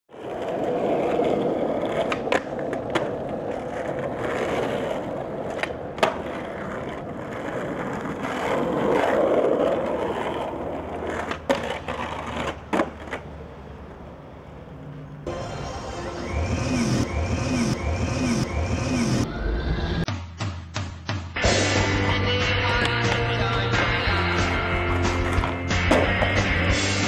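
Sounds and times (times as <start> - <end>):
skateboard clacking on ground: 0.1 - 15.1, 22.6 - 26.7
skateboard wheels rolling on asphalt: 0.1 - 15.3, 21.5 - 27.0.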